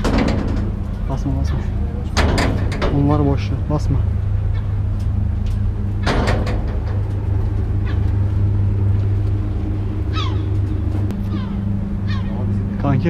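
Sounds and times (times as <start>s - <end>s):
low outdoor rumble: 0.0s - 13.0s
falling bird calls: 4.2s - 12.7s.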